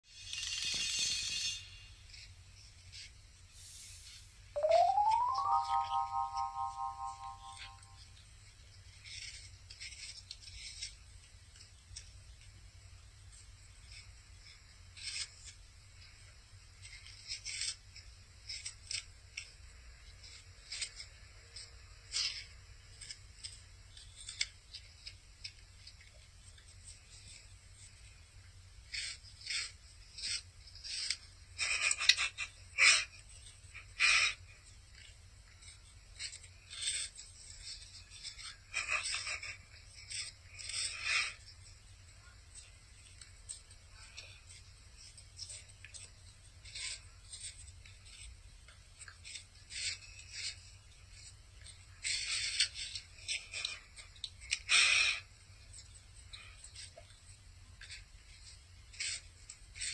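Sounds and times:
dog crunching an apple: 8.8 - 12.2, 16.2 - 28.0, 42.5 - 59.9.

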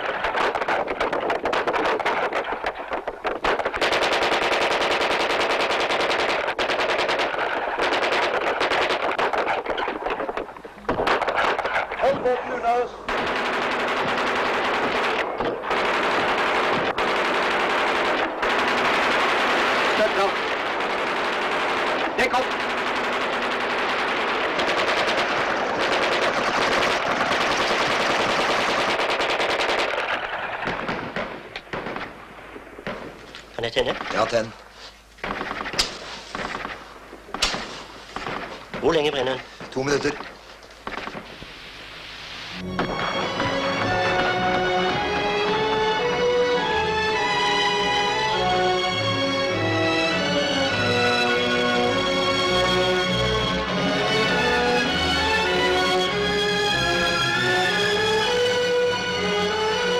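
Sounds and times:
automatic gunfire: 0.0 - 32.2, 35.2 - 40.2, 40.8 - 41.4
machine-gun fire: 0.0 - 34.5, 35.2 - 41.5.

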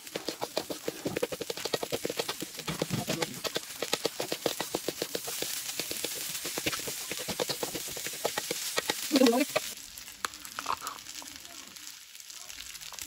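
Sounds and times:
spatula clacking against wok: 0.0 - 9.8
steady sizzle: 0.0 - 13.0.

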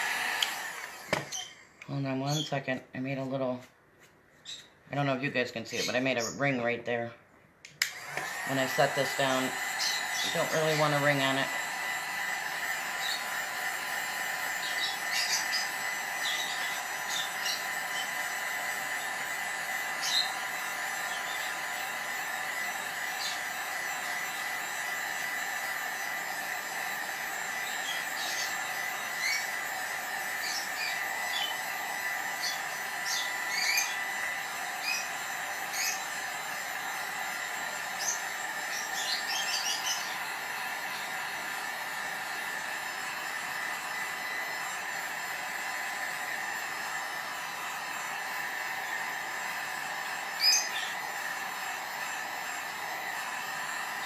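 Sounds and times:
heat gun fan whirring: 0.0 - 3.7, 4.4 - 54.0
high bird chirps: 4.4 - 4.8, 9.6 - 10.9, 14.6 - 18.2, 32.4 - 34.1, 34.8 - 35.1, 35.7 - 36.1, 38.0 - 40.2, 50.4 - 51.0.

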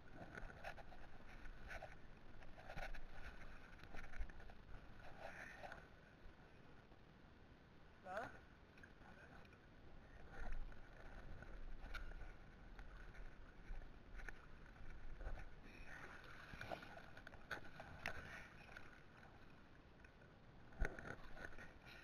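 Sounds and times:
water splashing while wading: 15.5 - 19.6.

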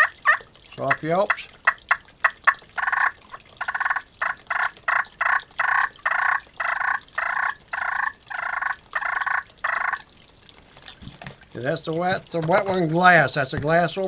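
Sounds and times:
turkey call soft yelps: 1.9 - 10.0.

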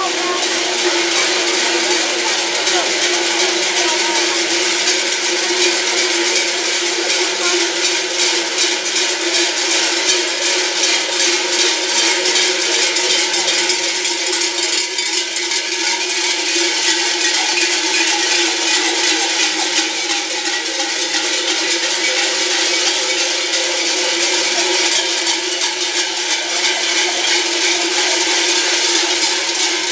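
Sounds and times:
cowbells clanging rhythmically: 0.0 - 29.9.

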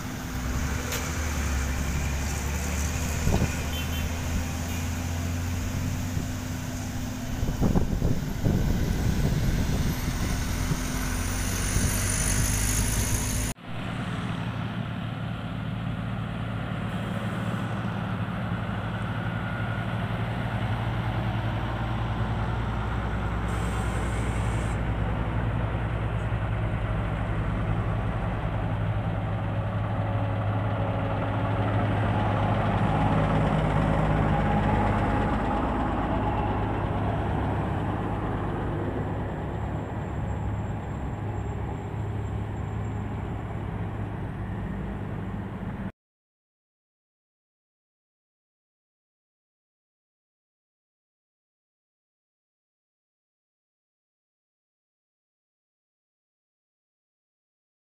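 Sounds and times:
car traffic passing: 0.0 - 15.3
asphalt paver engine: 0.0 - 45.9
road roller diesel engine humming: 0.0 - 45.9.

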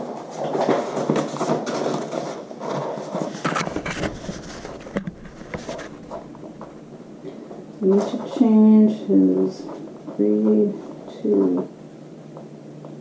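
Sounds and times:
handling rustling and knocks: 0.0 - 8.8.

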